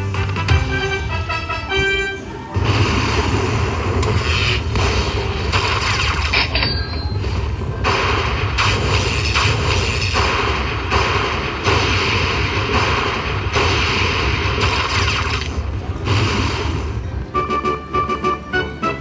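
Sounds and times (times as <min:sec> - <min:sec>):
slot machine sound effects: 0:04.1 - 0:07.6, 0:14.6 - 0:19.0.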